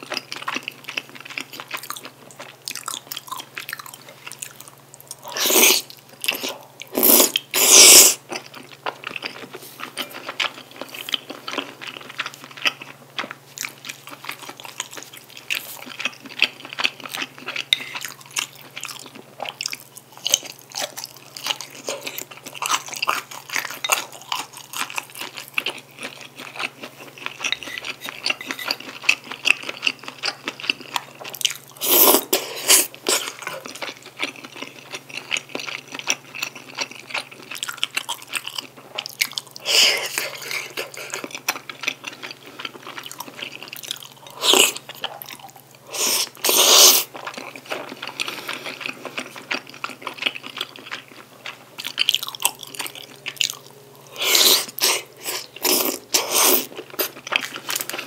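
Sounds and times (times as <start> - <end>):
wet chewing mouth sounds: 0.0 - 58.0
loud slurps: 7.0 - 8.2, 45.9 - 47.1.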